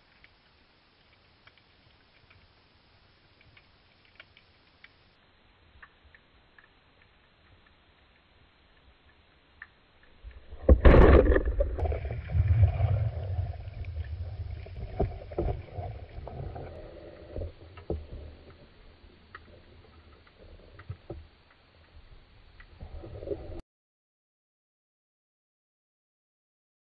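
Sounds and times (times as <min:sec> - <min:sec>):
underwater churning rumble: 0:10.3 - 0:20.8.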